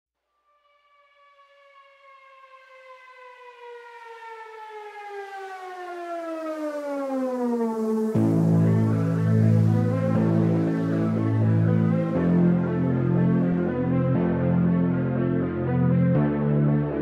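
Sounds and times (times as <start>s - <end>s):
siren-like tone sliding down: 0.7s - 14.2s.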